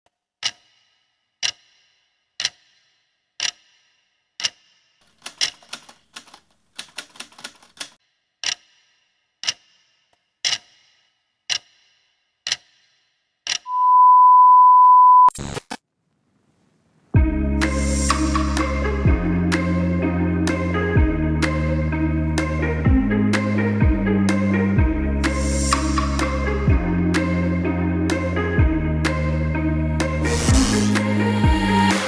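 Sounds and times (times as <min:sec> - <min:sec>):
steady beep: 0:13.7 - 0:15.3.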